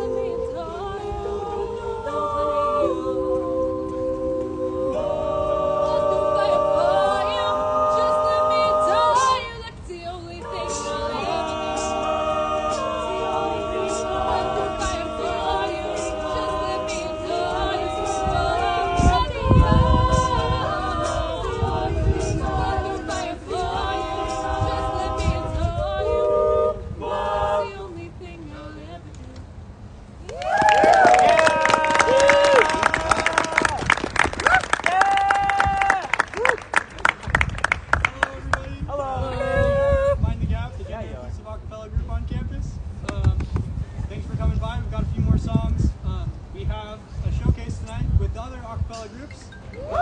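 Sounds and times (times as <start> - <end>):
a cappella group singing harmony: 0.0 - 29.1.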